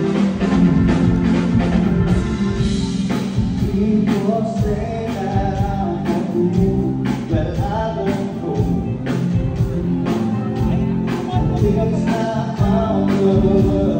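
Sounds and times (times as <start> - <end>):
live band playing: 0.0 - 13.9
steady drum beat: 0.0 - 13.9
person singing: 3.1 - 13.9.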